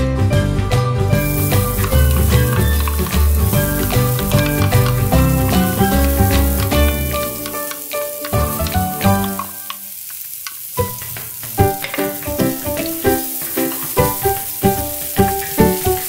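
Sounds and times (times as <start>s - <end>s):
melodic background music: 0.0s - 9.7s
chilies and garlic sizzling in oil: 1.0s - 16.0s.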